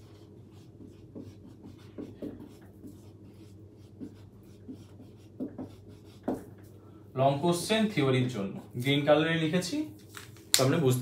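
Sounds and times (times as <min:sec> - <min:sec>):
marker writing on whiteboard: 0:00.0 - 0:06.8.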